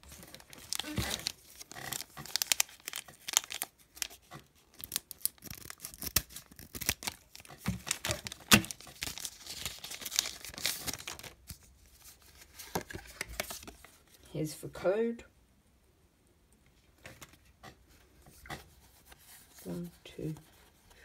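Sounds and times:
foil wrapper tearing and crinkling: 0:00.0 - 0:11.7.

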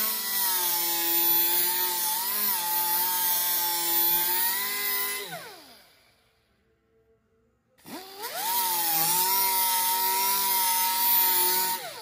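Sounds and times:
pneumatic cut-off tool whining: 0:00.0 - 0:06.2, 0:07.8 - 0:12.0.

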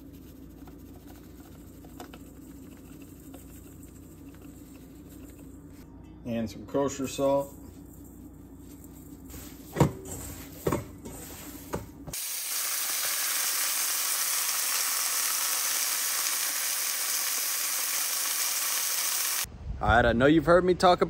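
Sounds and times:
patties sizzling in a skillet: 0:12.2 - 0:19.5.

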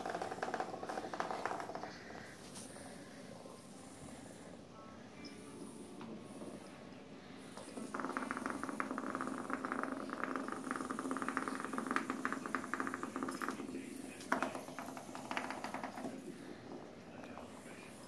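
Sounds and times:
toy vibration motor rattling on floor: 0:00.0 - 0:02.2, 0:07.6 - 0:18.0.

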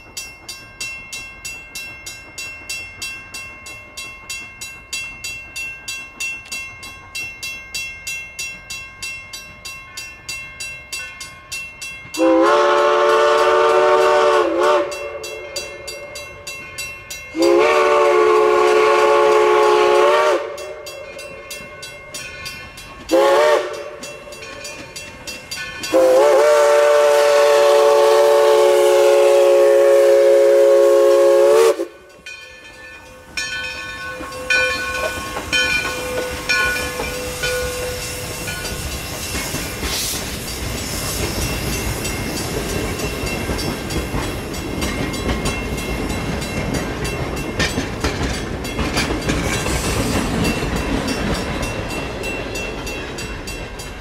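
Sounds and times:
train rolling past: 0:00.0 - 0:54.0
steam locomotive chime whistle: 0:12.1 - 0:54.0.

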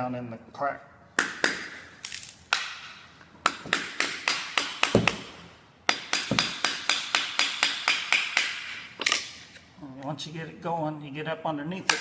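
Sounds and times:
hammer striking chisel into wood: 0:02.5 - 0:08.9.

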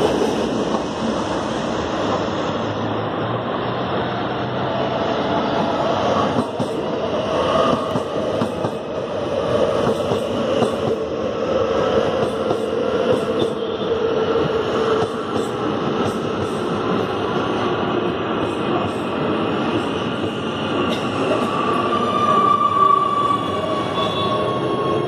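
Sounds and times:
train wheels on rail: 0:00.0 - 0:25.0.

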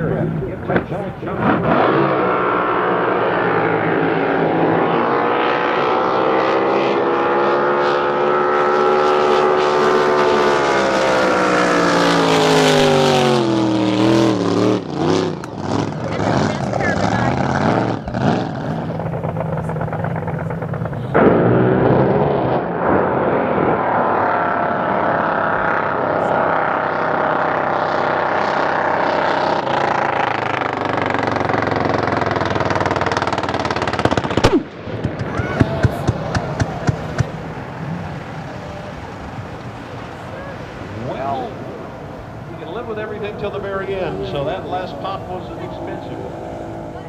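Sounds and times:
boat engine at full throttle: 0:00.0 - 0:47.0
exhaust pops and cracks: 0:31.5 - 0:37.4.

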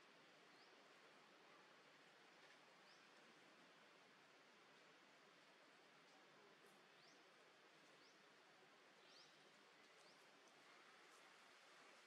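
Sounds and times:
faint steady hiss: 0:00.0 - 0:12.0.

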